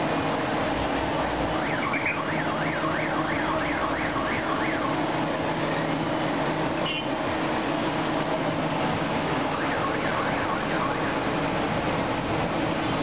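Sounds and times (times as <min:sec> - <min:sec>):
street traffic hum: 0:00.0 - 0:13.0
electronic siren sweeping: 0:01.6 - 0:05.1, 0:09.5 - 0:11.3.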